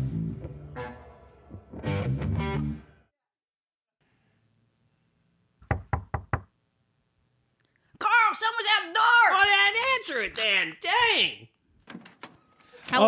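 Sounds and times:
guitar music sting: 0.0 - 3.0
knocking on door: 5.6 - 6.5.

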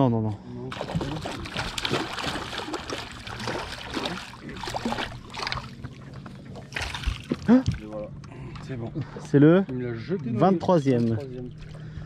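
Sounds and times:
steady low hum: 0.1 - 12.0
water splashing against boat: 0.7 - 8.7.

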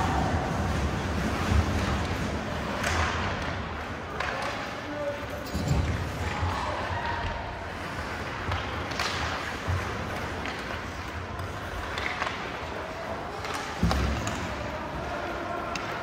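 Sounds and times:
hum of arena voices: 0.0 - 16.0
puck and sticks knocking boards: 0.7 - 4.7, 8.3 - 12.6, 13.4 - 14.6.

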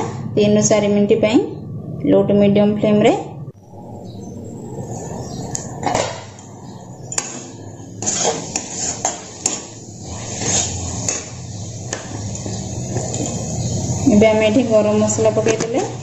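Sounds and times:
spatula scraping metal pan: 5.1 - 13.8.

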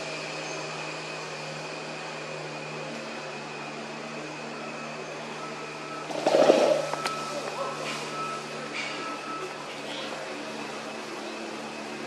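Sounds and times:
low machine hum: 5.0 - 10.7.

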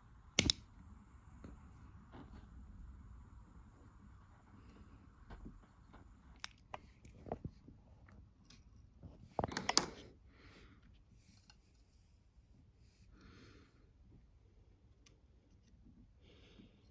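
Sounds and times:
lighter flame hissing: 0.0 - 7.2.

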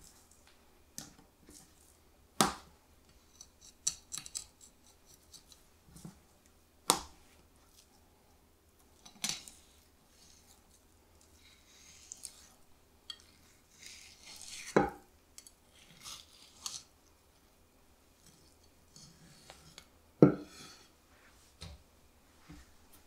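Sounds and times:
knife slicing and scraping fish: 13.4 - 14.8, 15.7 - 16.9.

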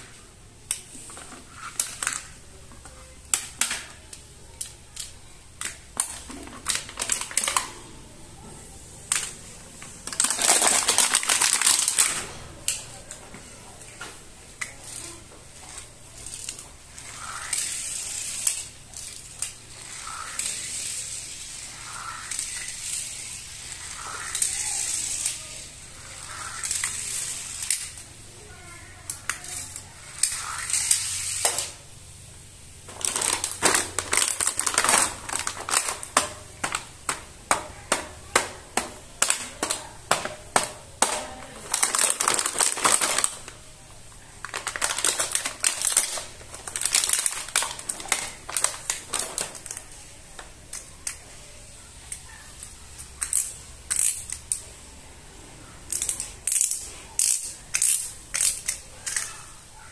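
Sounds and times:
plastic toy cars clicking and rattling: 0.0 - 31.9, 32.9 - 54.8, 55.7 - 59.9
plastic packaging crinkling: 6.6 - 7.8, 10.0 - 12.4, 32.9 - 36.8, 41.1 - 43.6, 44.4 - 50.4.

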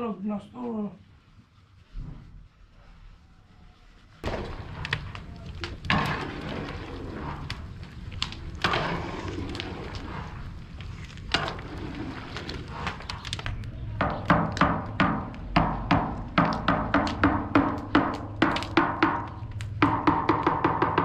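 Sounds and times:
ladle scraping metal cauldron: 4.2 - 20.0.

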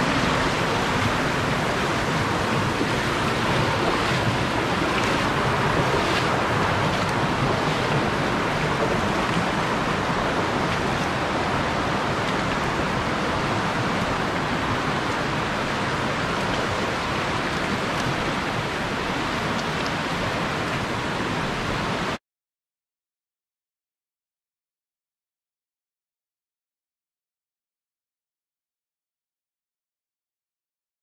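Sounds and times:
stream rushing over rocks: 0.0 - 22.2.

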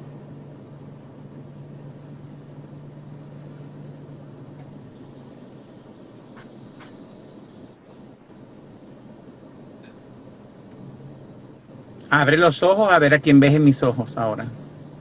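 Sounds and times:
car interior hum and hiss: 0.0 - 15.0
faint clicks: 6.3 - 7.2.

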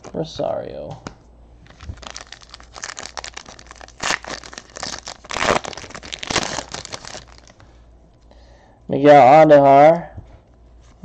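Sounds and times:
card pack wrapper tearing: 1.7 - 7.6.

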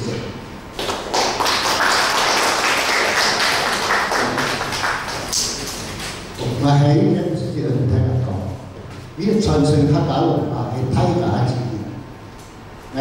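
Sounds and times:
audience applauding: 0.8 - 5.8.

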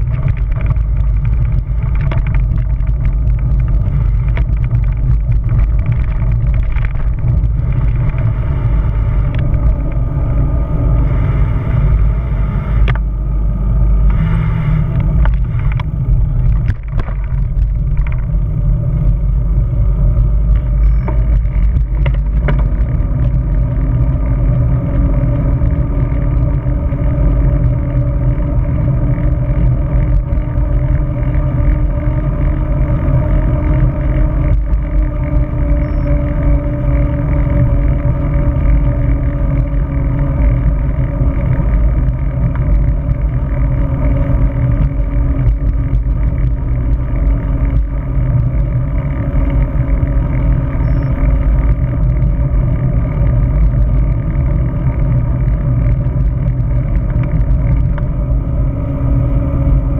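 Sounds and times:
faint steady hum: 0.0 - 59.9
road and tyre noise: 0.0 - 59.9
wind buffeting microphone: 0.0 - 59.9.

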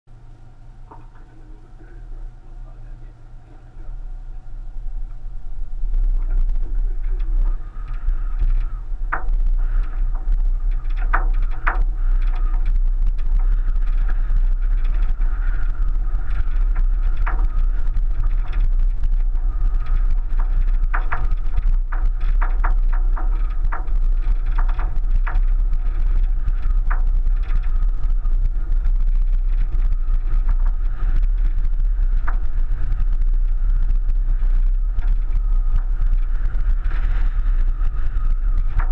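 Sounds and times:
car driving on dirt track: 3.8 - 38.9.

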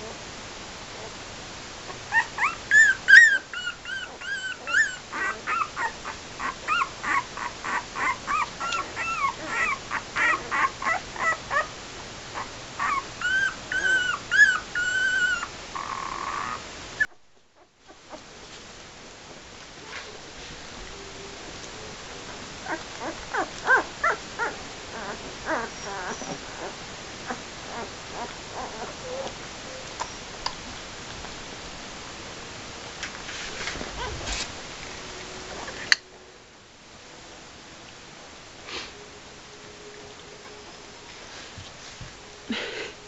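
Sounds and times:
puppies whimpering and squeaking: 1.9 - 11.7, 12.4 - 16.6, 22.3 - 30.3, 33.9 - 34.4.

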